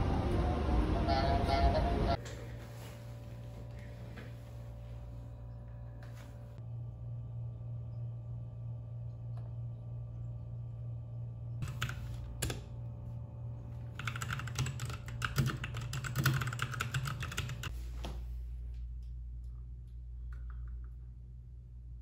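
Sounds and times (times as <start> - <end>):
keyboard typing: 11.6 - 12.7, 13.9 - 17.7.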